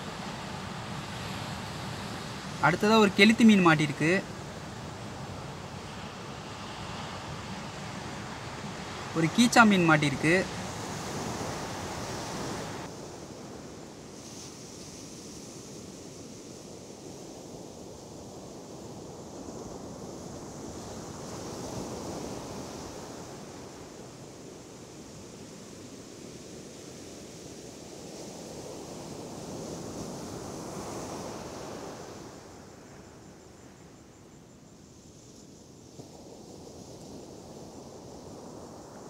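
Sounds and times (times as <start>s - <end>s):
ocean surf breaking: 0.0s - 14.2s.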